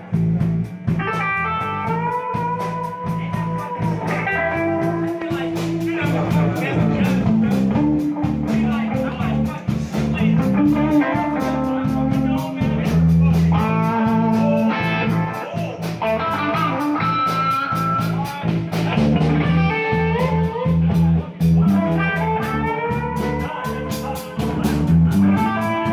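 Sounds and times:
bass guitar: 0.0 - 25.9
electric guitar lead: 0.0 - 25.9
steady drum beat: 0.0 - 25.9.

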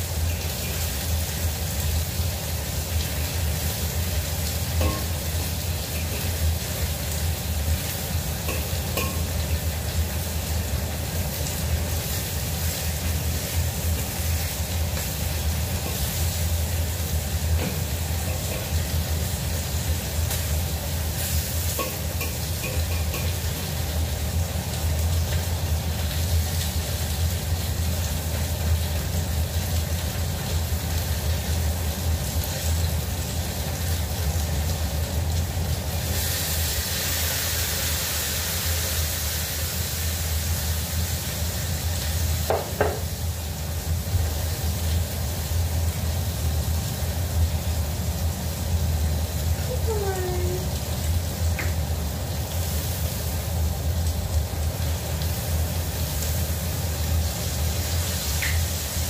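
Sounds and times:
tofu sizzling in oil: 0.0 - 59.0
metal spatula clinks: 4.8 - 5.2, 8.5 - 9.3.

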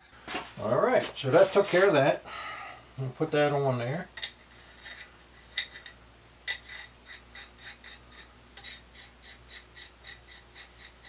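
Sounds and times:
metal rasping on metal: 4.6 - 11.0.

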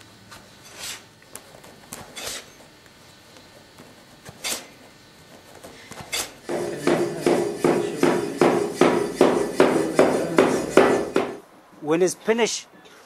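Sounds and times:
beating comb knocking: 6.4 - 11.4.

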